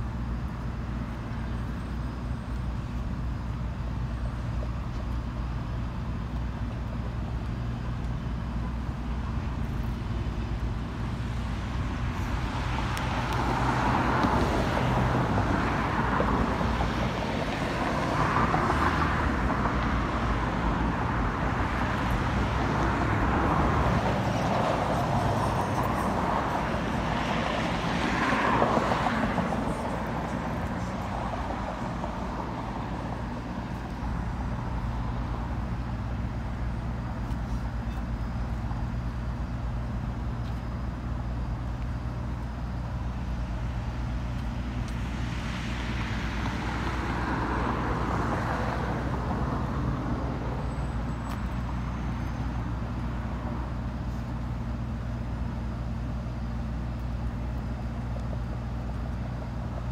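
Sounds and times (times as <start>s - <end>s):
vehicles passing: 0.0s - 59.9s.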